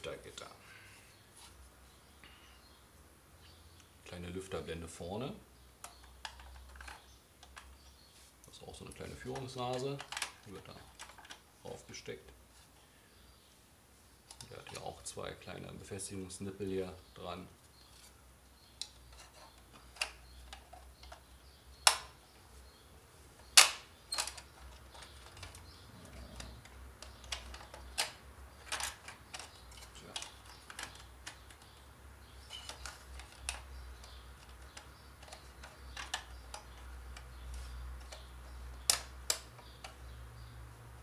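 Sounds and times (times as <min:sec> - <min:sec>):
plastic parts clicking and knocking: 0:05.8 - 0:07.9, 0:08.9 - 0:11.5, 0:14.2 - 0:15.0, 0:18.8 - 0:22.3, 0:23.4 - 0:40.2.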